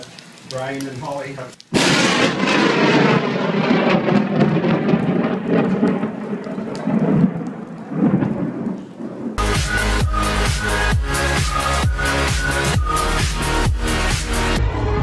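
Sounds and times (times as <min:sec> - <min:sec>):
rain: 0:00.0 - 0:14.6
thunder rumbling: 0:01.7 - 0:10.8.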